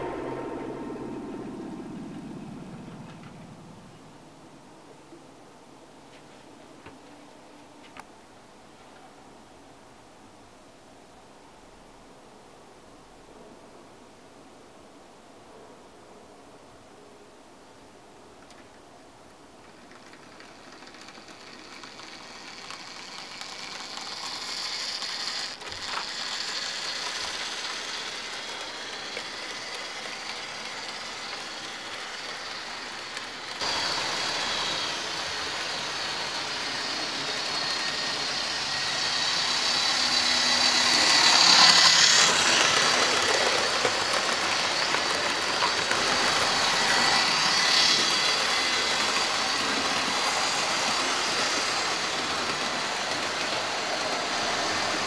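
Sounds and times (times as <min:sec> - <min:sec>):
model train running on track: 0:19.4 - 0:55.0.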